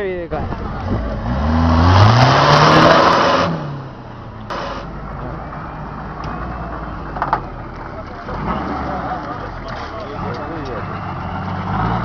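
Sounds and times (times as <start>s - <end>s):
engine revving hard: 1.2s - 3.8s, 8.3s - 9.3s
tyres churning mud: 6.1s - 12.0s.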